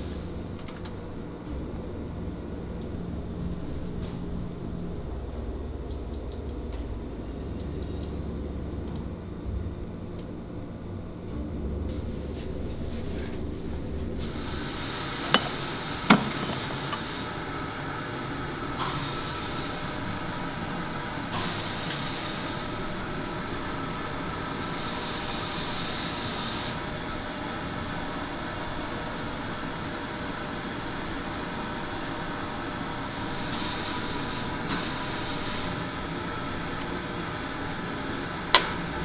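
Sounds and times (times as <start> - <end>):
workshop machinery hum: 0.0 - 39.0
hiss: 14.2 - 17.4, 18.8 - 20.1, 21.3 - 23.0, 24.5 - 26.9, 33.0 - 36.0.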